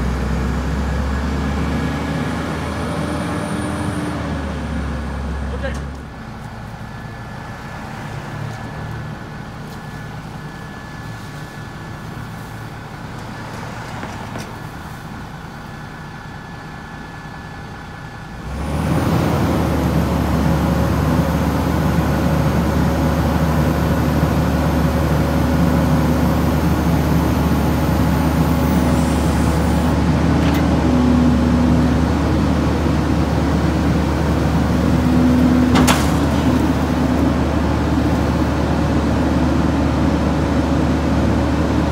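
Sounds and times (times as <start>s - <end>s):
garbage truck engine: 0.0s - 41.9s
hydraulic whine: 18.3s - 38.5s.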